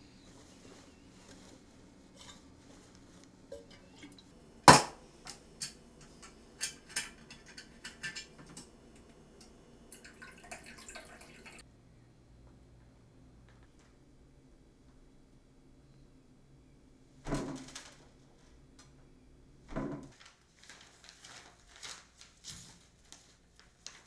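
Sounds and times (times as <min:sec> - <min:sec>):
scraping and rustling: 0:00.0 - 0:04.4
metal kitchenware knocking and clinking: 0:03.5 - 0:08.7.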